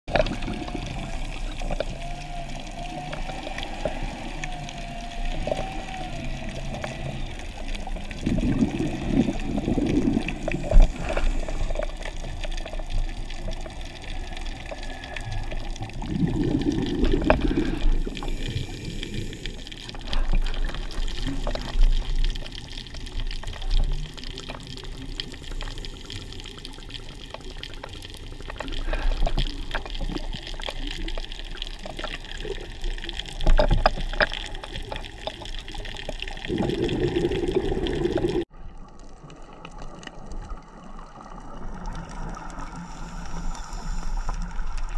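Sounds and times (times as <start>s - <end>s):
diver's bubbles gurgling: 0.1s - 44.9s
underwater hiss: 0.2s - 22.5s, 24.8s - 27.4s, 42.0s - 44.9s.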